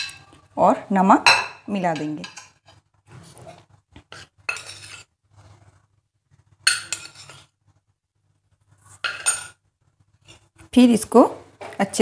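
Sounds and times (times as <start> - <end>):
spoon clinking and scraping dish: 0.0 - 0.5, 1.3 - 5.2, 6.5 - 7.6, 8.8 - 9.6.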